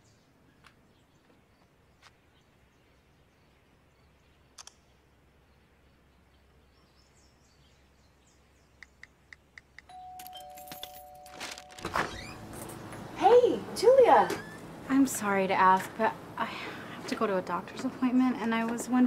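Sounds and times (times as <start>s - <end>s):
two-tone doorbell chime: 9.9s - 12.6s.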